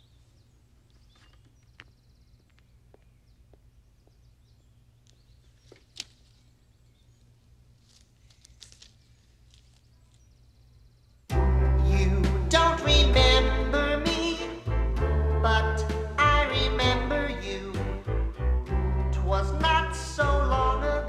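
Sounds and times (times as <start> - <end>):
low hum: 10.4 - 21.0.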